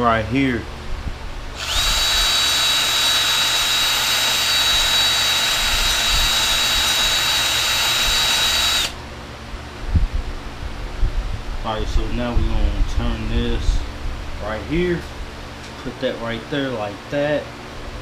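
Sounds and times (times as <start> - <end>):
cordless drill whining: 1.6 - 9.0.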